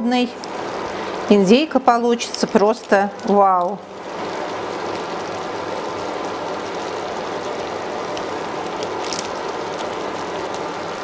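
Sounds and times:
sauce simmering and bubbling: 2.2s - 11.0s
foil wrapper crinkling: 6.7s - 11.0s.

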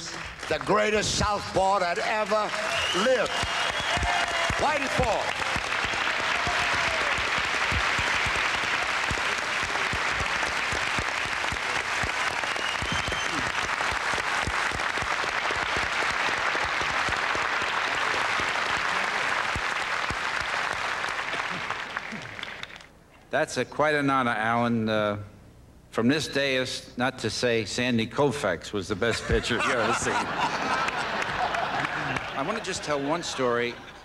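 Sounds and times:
audience applauding: 0.0s - 22.9s, 29.7s - 33.7s.

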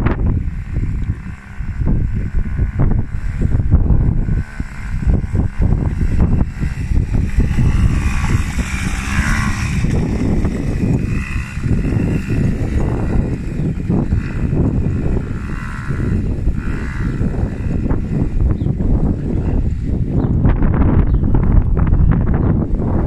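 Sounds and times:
atv engine rumbling: 0.0s - 23.0s.

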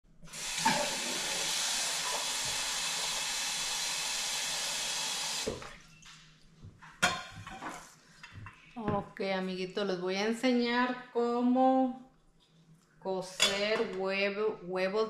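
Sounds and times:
faucet water running into sink: 0.3s - 5.8s.

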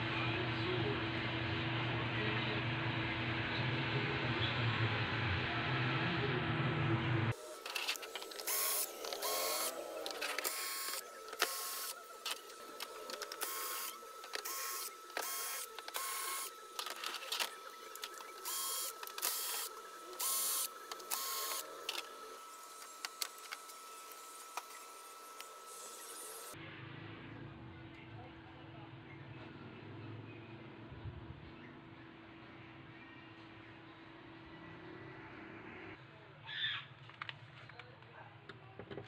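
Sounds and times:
drill-driver motor bursts: 7.4s - 26.6s.

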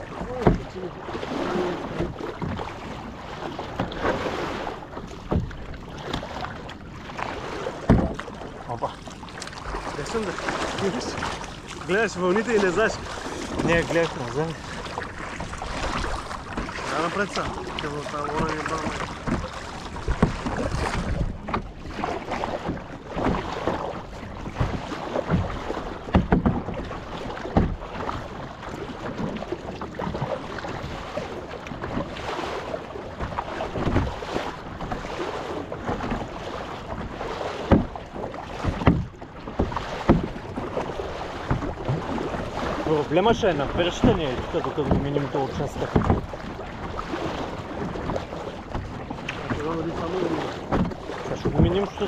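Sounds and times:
paddle stroke splashes: 0.0s - 52.0s
water sloshing around kayak: 0.0s - 52.0s
wind on microphone: 9.6s - 26.8s.

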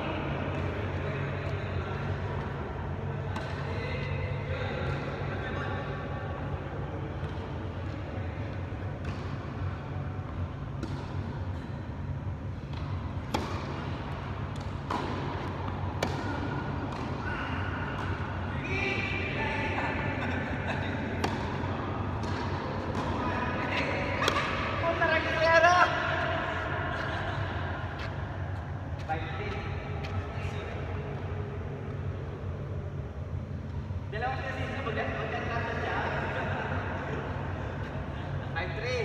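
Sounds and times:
tennis ball hits and bounces: 10.7s - 11.2s, 12.6s - 17.2s, 21.2s - 24.7s
voices: 13.4s - 32.0s.

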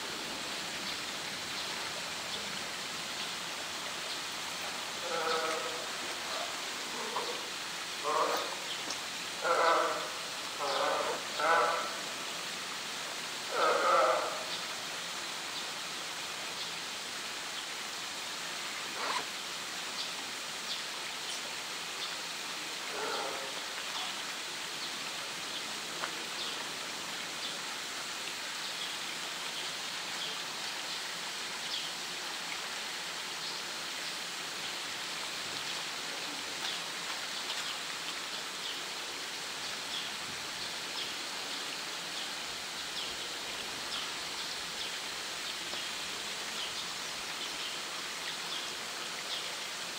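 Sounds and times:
water hissing: 0.0s - 15.2s.

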